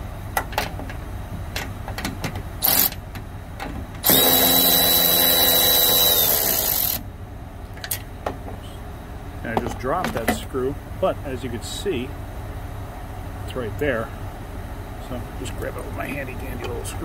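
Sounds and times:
cordless ratchet spinning: 2.6s - 3.0s, 4.0s - 7.0s.

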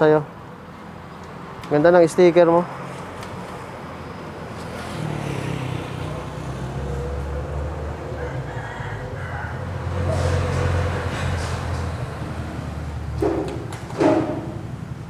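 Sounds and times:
rooster crowing: 7.4s - 10.6s.

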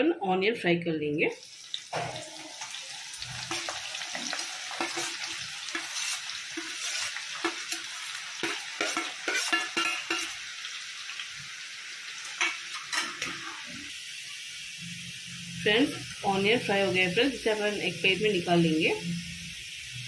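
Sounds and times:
onions sizzling in oil: 1.3s - 20.0s
metal spoon scraping a pan: 1.9s - 10.5s, 12.2s - 13.9s.

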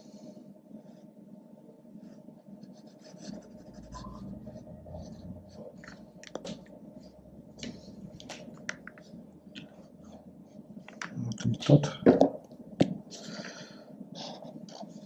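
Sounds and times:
marker scratching on paper: 2.0s - 6.1s.

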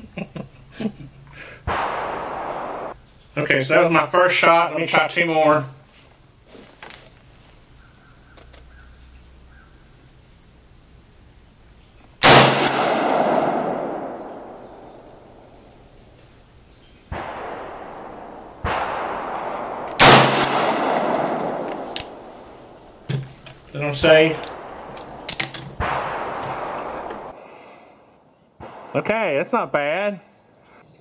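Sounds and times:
faint bangs: 1.7s - 3.0s, 17.0s - 27.6s, 28.6s - 29.6s
rifle shots with echo: 1.7s - 3.0s, 12.2s - 15.5s, 17.1s - 23.1s, 23.7s - 27.4s, 28.6s - 29.2s.

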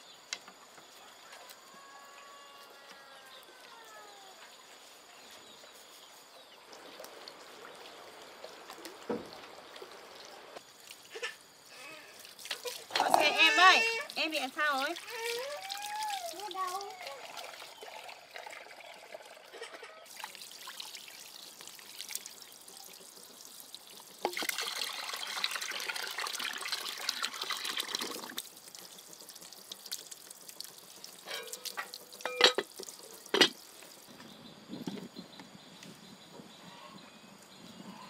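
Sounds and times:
water trickling and pouring: 5.0s - 34.2s.

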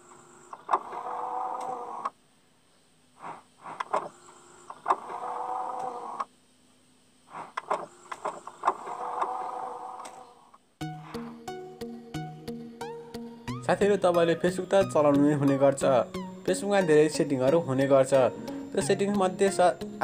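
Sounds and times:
mechanical whirr: 0.0s - 2.2s, 3.1s - 6.5s, 7.2s - 11.2s
short clicks: 0.5s - 2.2s.

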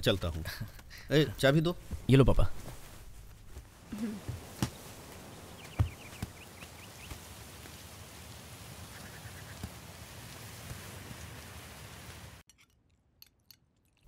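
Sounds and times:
bird chirping: 5.3s - 7.2s.

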